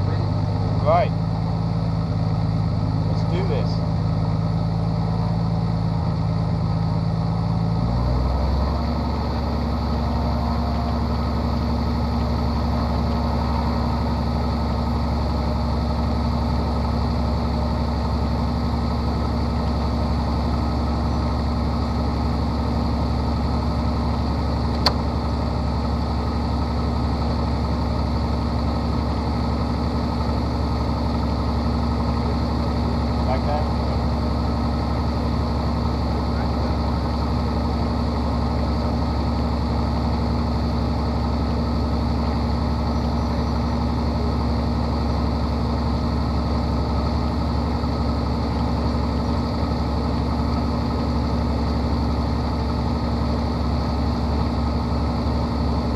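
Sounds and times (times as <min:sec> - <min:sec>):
propeller plane engine running: 0:00.0 - 0:55.9
sharp click: 0:24.7 - 0:25.0.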